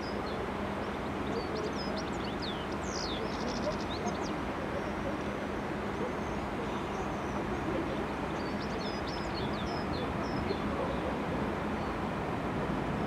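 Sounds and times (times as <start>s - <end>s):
small birds chirping: 0.0s - 12.1s.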